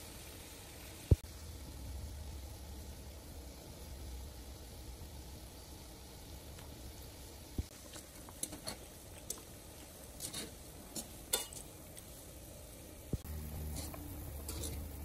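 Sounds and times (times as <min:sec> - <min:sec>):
water boiling and bubbling: 0:00.0 - 0:15.0
skimmer clinking against pan: 0:11.3 - 0:11.6.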